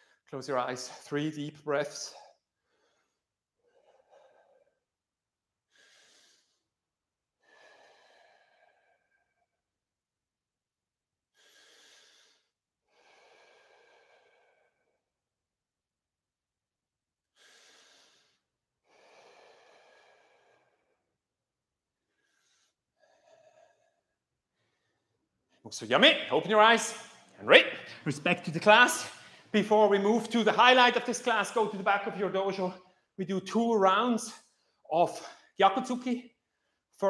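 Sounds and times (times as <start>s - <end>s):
man breathing deeply: 5.7s - 6.8s, 7.4s - 9.5s, 11.3s - 15.1s, 17.3s - 21.2s, 21.9s - 25.3s, 28.7s - 29.6s.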